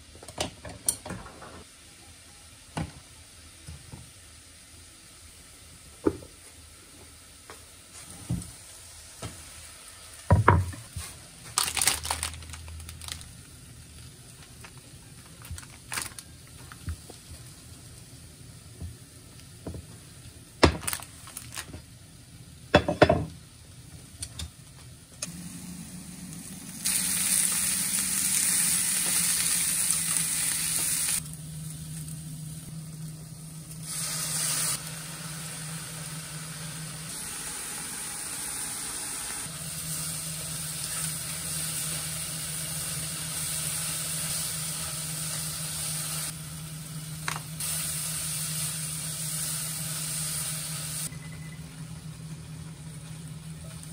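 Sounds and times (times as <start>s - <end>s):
utensils knocking on cutting board: 10.3s - 10.8s
tofu sizzling in frying pan: 25.4s - 51.1s.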